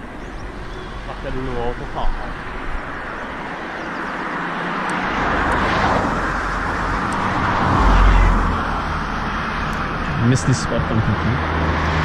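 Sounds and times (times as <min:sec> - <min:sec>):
vehicle driving past: 0:05.0 - 0:12.0.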